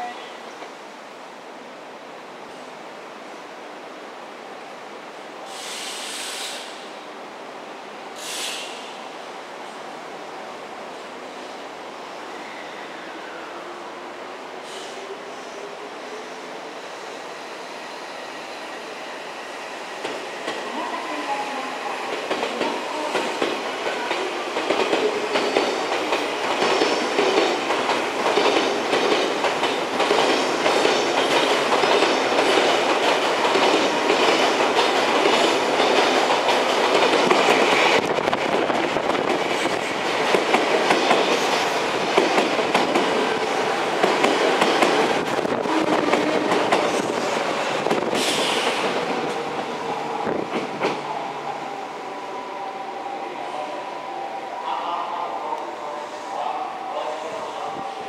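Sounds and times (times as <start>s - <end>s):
train wheels clacking over rail joints: 22.2s - 38.1s.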